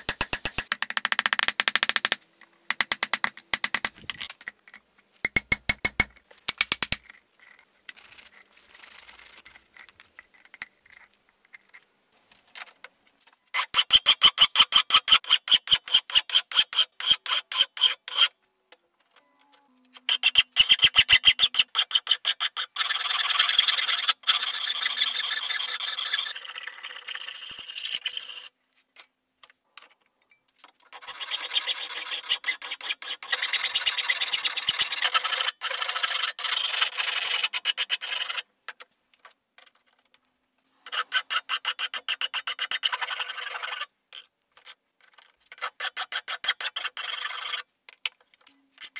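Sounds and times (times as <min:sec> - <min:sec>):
file rasping on steel: 0:20.1 - 0:27.0, 0:40.8 - 0:43.8, 0:45.5 - 0:47.6.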